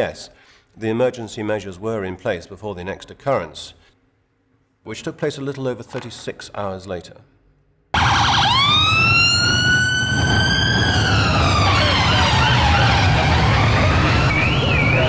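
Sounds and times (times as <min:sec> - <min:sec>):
busy street rumble: 0:08.0 - 0:15.0
siren wailing: 0:08.0 - 0:15.0
warbling siren: 0:08.0 - 0:15.0.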